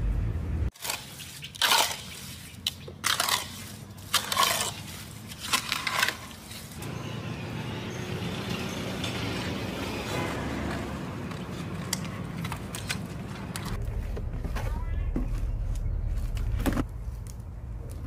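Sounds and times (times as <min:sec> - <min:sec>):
trowel scraping mortar in metal basin: 0:00.8 - 0:06.8.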